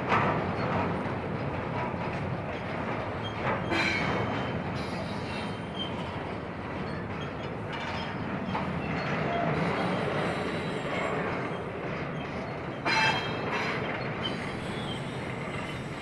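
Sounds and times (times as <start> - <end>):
train clanks: 0.0 - 16.0
train wheels rumbling on rails: 0.0 - 16.0
faint wheel squeals: 12.2 - 16.0.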